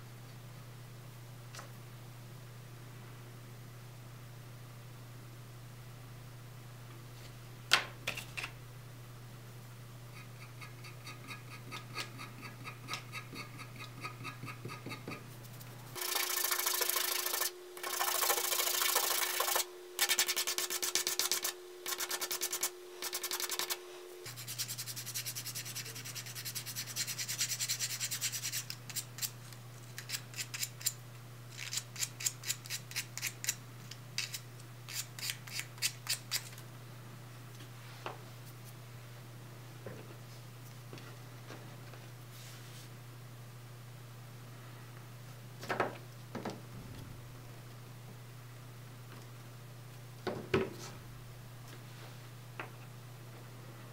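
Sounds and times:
plastic being sanded by hand: 16.0s - 28.7s.

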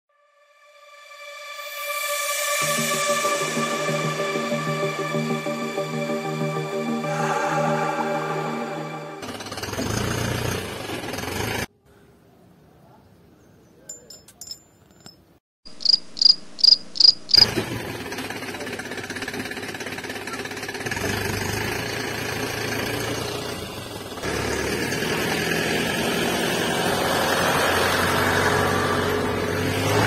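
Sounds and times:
high-pitched chirps: 15.7s - 17.4s.

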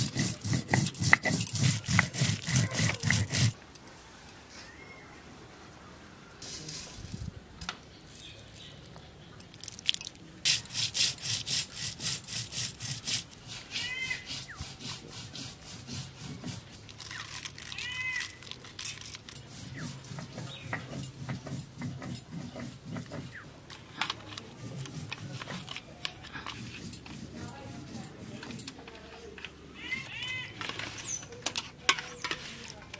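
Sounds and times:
stone roller grinding on stone: 0.0s - 3.6s, 10.5s - 32.9s.

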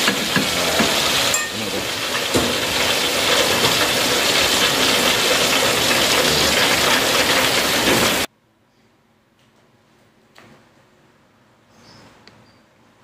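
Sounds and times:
hot oil sizzling in wok: 0.0s - 8.3s.

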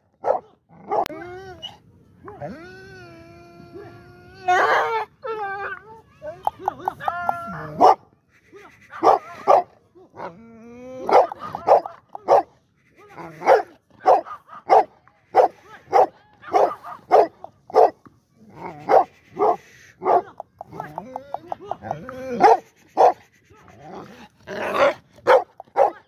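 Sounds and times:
dog barking: 0.2s - 1.1s, 7.7s - 8.0s, 9.0s - 9.7s, 11.1s - 12.5s, 13.4s - 18.0s, 18.9s - 20.2s, 22.4s - 23.2s, 25.2s - 26.0s.

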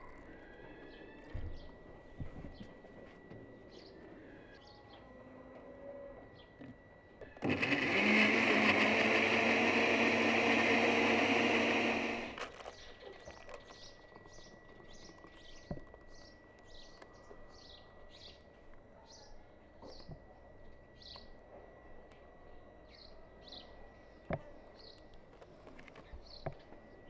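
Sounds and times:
blender running: 7.4s - 12.5s.

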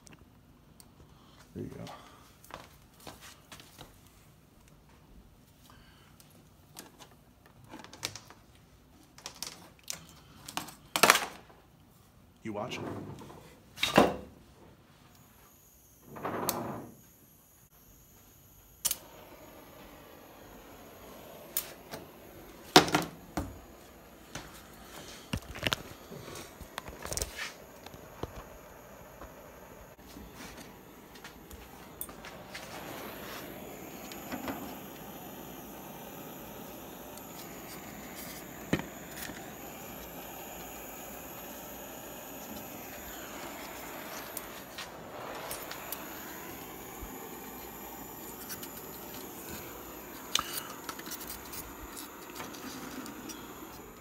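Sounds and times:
click: 18.8s - 19.0s
blowtorch igniter clack: 18.8s - 29.4s, 30.0s - 54.0s
blowtorch whoosh: 19.0s - 54.0s.

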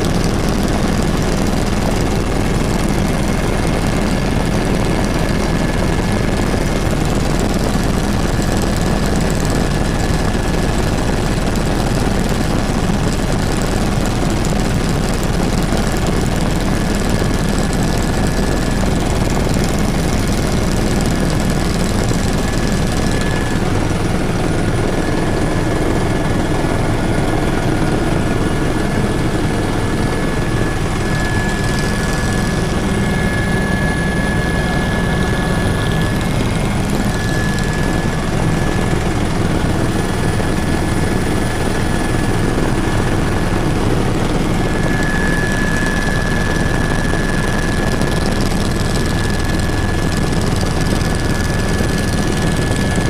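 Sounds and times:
helicopter rotor and engine din: 0.0s - 53.0s
thin high whine: 21.0s - 48.1s.

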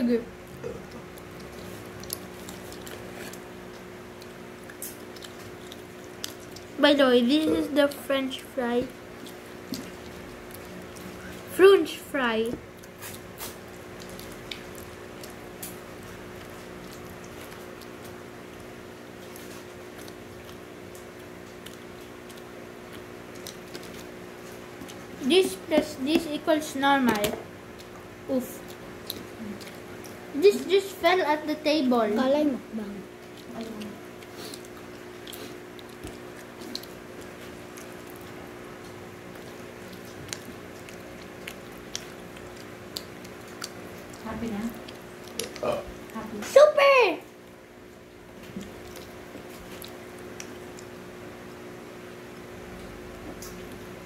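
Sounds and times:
steady low hum: 0.0s - 54.0s
chewing food: 0.3s - 46.6s, 47.3s - 54.0s
wet mouth clicks and smacks: 34.5s - 44.2s, 48.4s - 51.0s.

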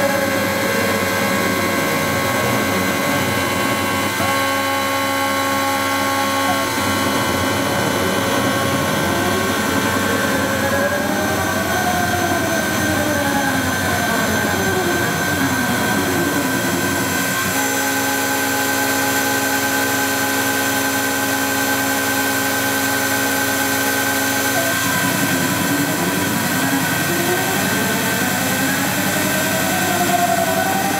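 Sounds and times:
machine whines sliding in pitch: 0.0s - 30.9s
mill motor whine: 0.0s - 30.9s.

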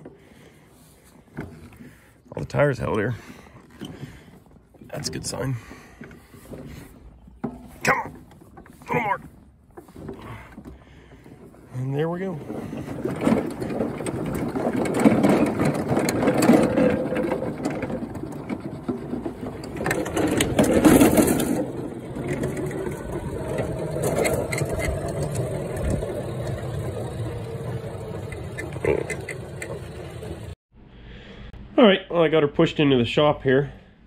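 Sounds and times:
tyres rolling over asphalt: 0.0s - 30.6s
chassis rattling: 1.3s - 30.6s.

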